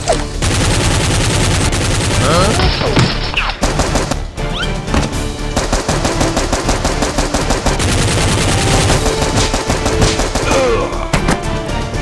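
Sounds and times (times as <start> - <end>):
automatic machine-gun fire: 0.4 - 2.6, 5.6 - 10.7.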